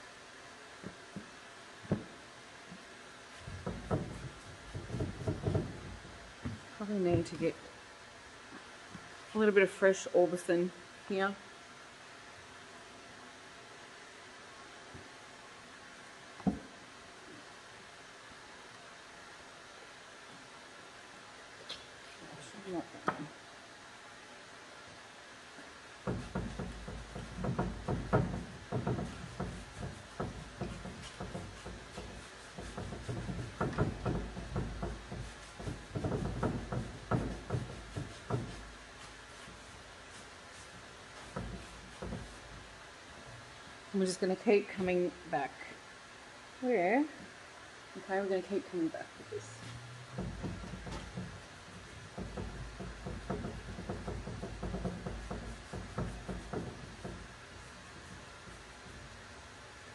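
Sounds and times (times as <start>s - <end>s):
paintbrush scrubbing on wood: 3.3s - 6.1s, 26.0s - 42.8s, 49.6s - 59.7s.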